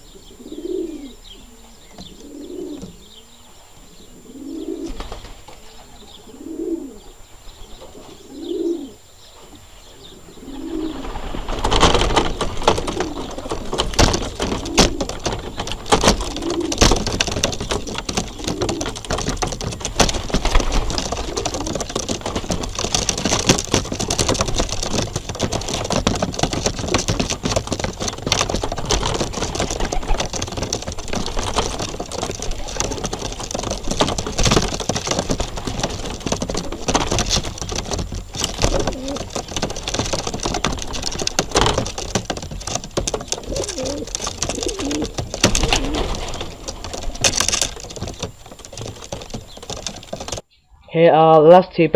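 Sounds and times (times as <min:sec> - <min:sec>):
pigeons cooing: 0:00.0 - 0:50.4
pigeons pecking at a floor: 0:10.4 - 0:50.4
wings brushing: 0:10.5 - 0:50.4.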